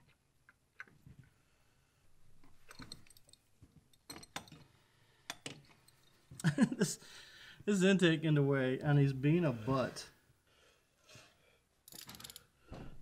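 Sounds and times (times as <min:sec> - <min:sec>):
spanner clinking on metal: 0:11.8 - 0:12.5.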